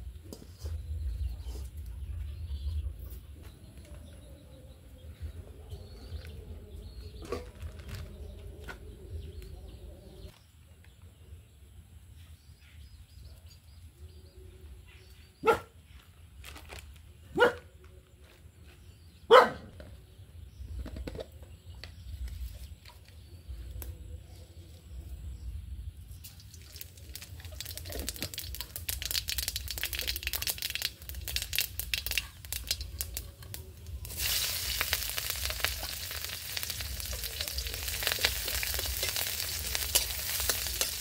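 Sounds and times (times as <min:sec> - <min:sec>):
dog barking: 0:15.4 - 0:15.8, 0:17.3 - 0:17.7, 0:19.3 - 0:19.7.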